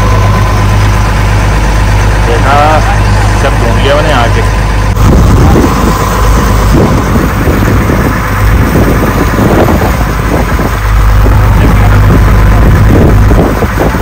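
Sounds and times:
motor boat engine humming: 0:00.0 - 0:14.0
wind on microphone: 0:04.8 - 0:14.0.

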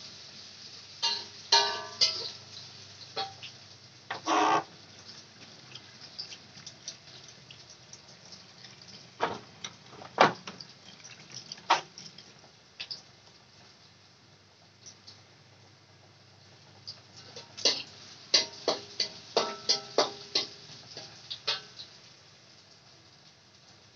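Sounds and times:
water boiling in a pot: 0:00.0 - 0:23.9
short pitched call: 0:04.2 - 0:04.6.

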